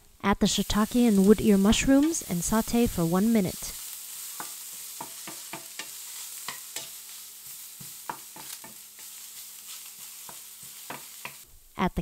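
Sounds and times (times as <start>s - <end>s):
mushrooms sizzling in hot oil: 0.0s - 11.7s
utensil clicking against pan: 4.4s - 7.0s.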